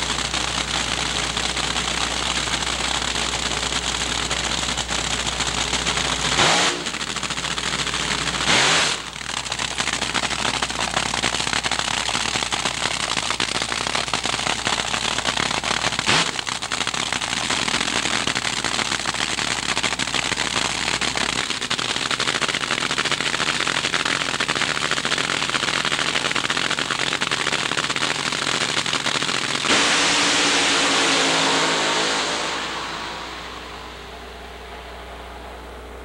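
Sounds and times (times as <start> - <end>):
dragster engine crackling: 0.0 - 36.0.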